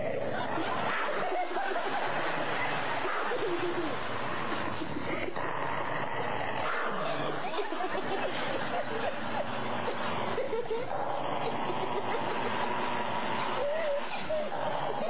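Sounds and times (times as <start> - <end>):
dog growling and snarling: 0.0 - 15.0.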